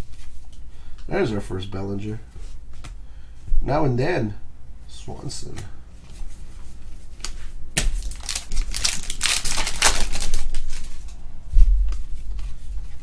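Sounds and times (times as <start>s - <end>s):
trading cards shuffling: 6.0s - 11.2s.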